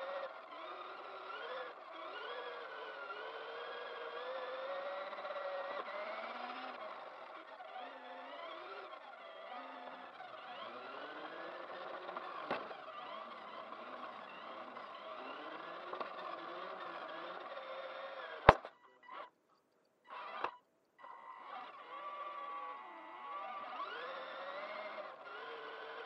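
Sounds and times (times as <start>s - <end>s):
toy car electric motor whining: 0.0s - 26.0s
sharp loud click: 18.4s - 18.7s.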